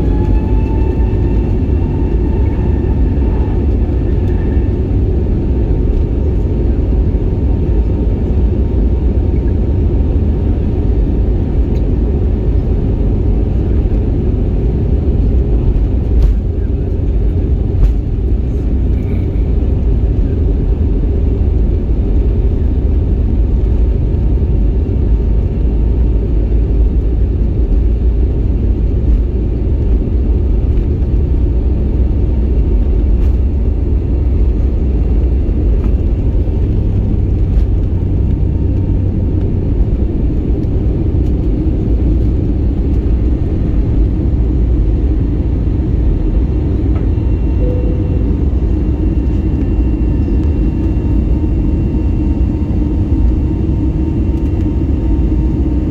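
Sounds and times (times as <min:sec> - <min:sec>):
jet engines rumbling: 0:00.0 - 0:55.9
faint high steady tone: 0:47.2 - 0:51.6.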